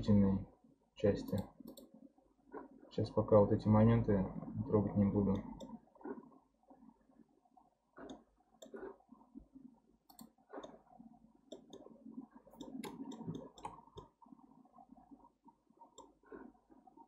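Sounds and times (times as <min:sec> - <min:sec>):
computer mouse clicks: 0:01.2 - 0:01.9, 0:08.0 - 0:09.0, 0:10.1 - 0:10.8, 0:11.5 - 0:11.9, 0:12.5 - 0:14.1.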